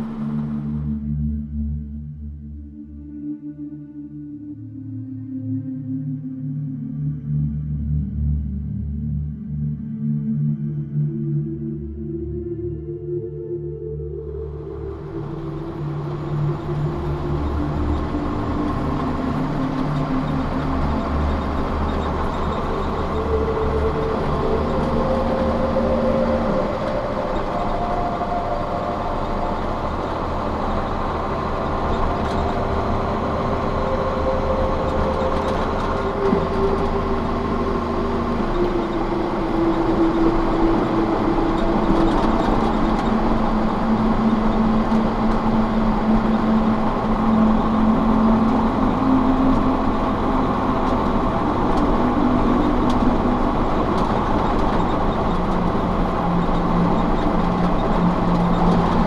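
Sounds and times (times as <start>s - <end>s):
road noise: 0.0s - 1.9s, 13.8s - 59.0s
truck engine drone: 0.0s - 59.0s.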